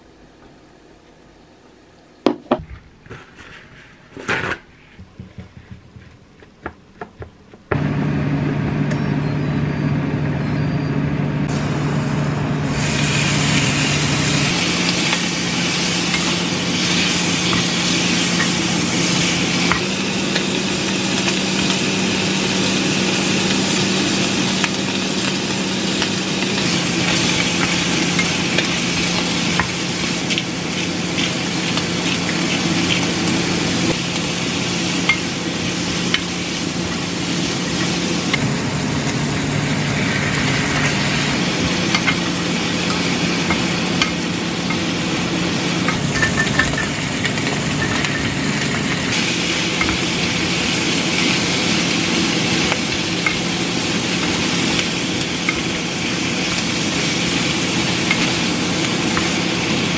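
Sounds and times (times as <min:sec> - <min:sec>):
kitchen handling knocks: 0:02.3 - 0:02.9, 0:05.0 - 0:07.8
meat sizzling in a pan: 0:12.6 - 0:59.9.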